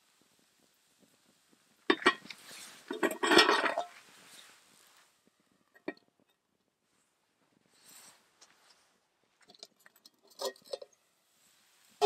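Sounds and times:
metal lid clanking on pan: 2.9 - 4.0.

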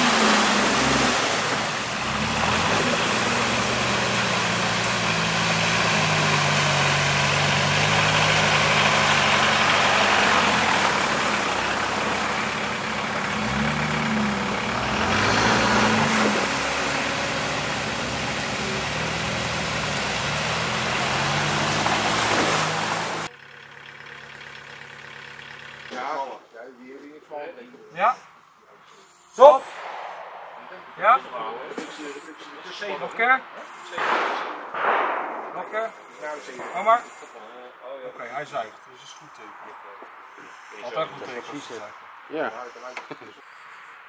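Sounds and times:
off-road engine running under load: 0.0 - 26.4.

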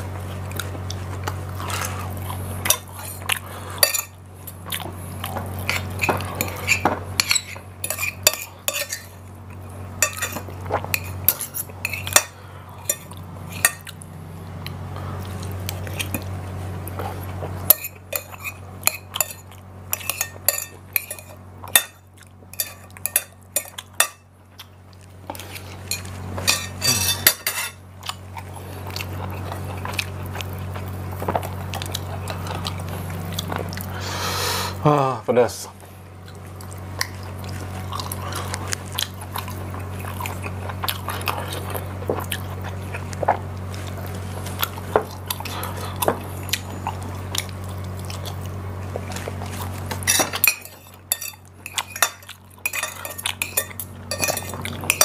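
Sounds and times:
cutlery clinking on a plate: 20.0 - 22.0, 25.9 - 27.8, 50.0 - 55.0.

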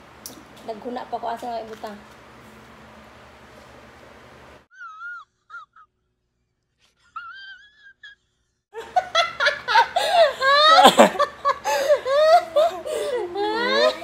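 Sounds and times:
people laughing loudly: 8.8 - 14.0
man's high-pitched wheezing whimper: 11.6 - 14.0.

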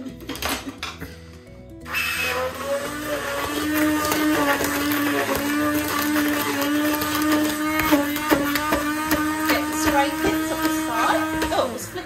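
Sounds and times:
stick blender motor whine: 1.8 - 12.0.

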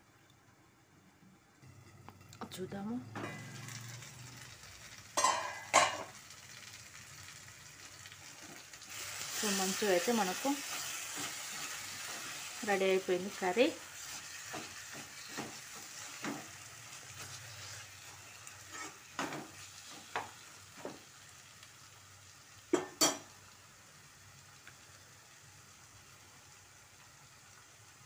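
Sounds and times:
curry sizzling in a pan: 1.4 - 28.0
spatula scraping and knocking pan: 14.0 - 16.6, 18.6 - 21.1.

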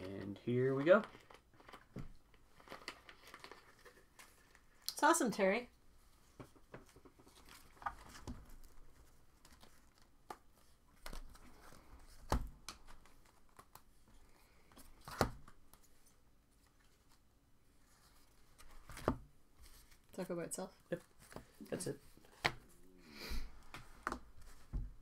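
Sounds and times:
card wrappers rustling: 0.0 - 4.8.

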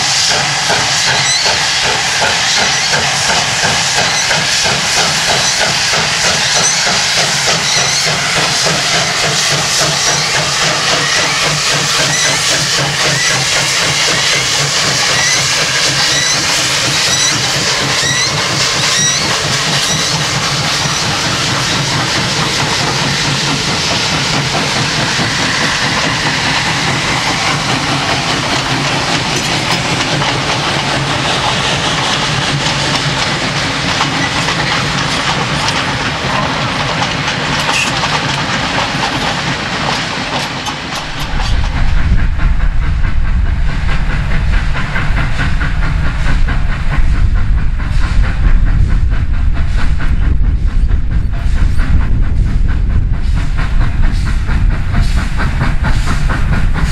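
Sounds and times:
carriage wheels clickety-clack: 0.0 - 42.4
steam locomotives hissing steam: 0.0 - 56.9
steam train deep rumble: 0.0 - 56.9.

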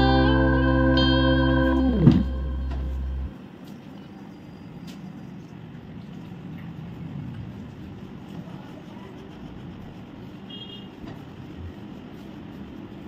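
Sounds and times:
background music with held chords: 0.0 - 3.3
low rumble of background noise: 0.0 - 13.0.

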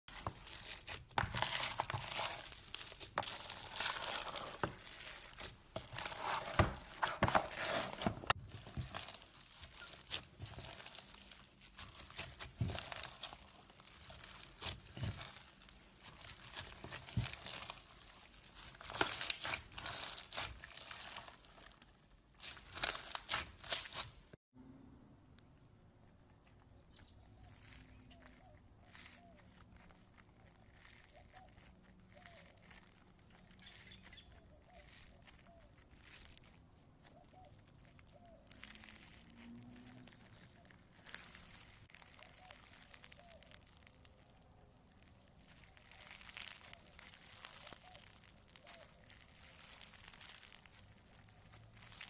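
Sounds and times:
crunchy slime crackling: 0.0 - 24.4, 26.0 - 52.0.

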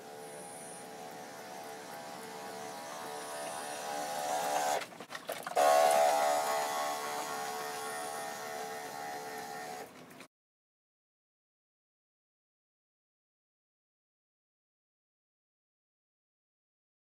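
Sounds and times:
sprayer pump motor whine: 0.0 - 4.8, 5.6 - 9.9.

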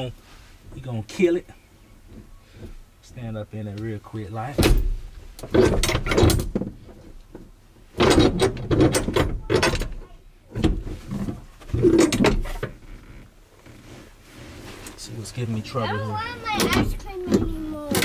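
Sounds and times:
seat frame clunking and rattling: 4.4 - 15.0, 15.8 - 18.0.

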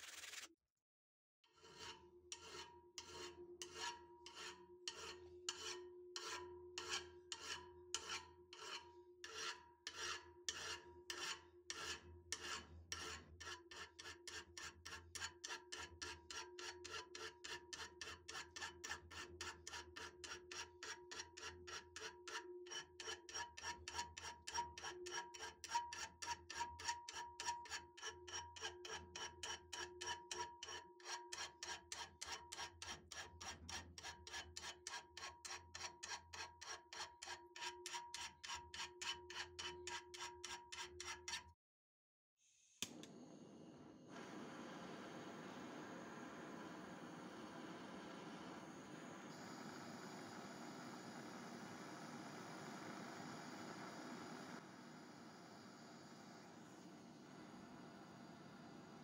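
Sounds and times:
file rasping on steel: 1.5 - 41.5.

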